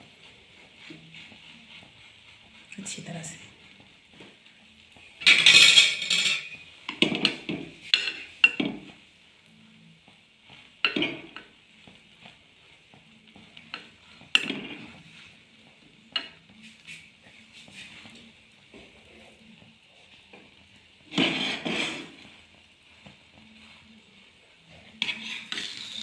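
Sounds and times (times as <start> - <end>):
spatula scraping and knocking pan: 0.0 - 9.0, 10.0 - 26.0
bread sizzling in a pan: 0.0 - 26.0.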